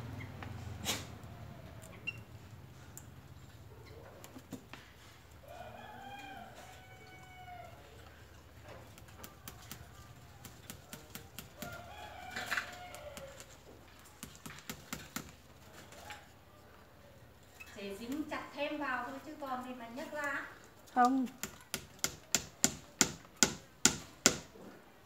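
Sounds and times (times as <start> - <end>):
hands rustling canes and ties: 2.6 - 16.5
rooster crowing: 5.4 - 8.1, 11.5 - 13.6.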